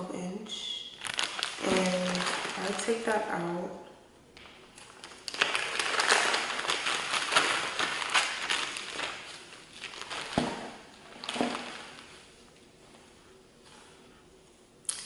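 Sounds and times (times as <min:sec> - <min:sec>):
plastic packaging crinkling: 0:00.9 - 0:03.4, 0:04.4 - 0:12.4.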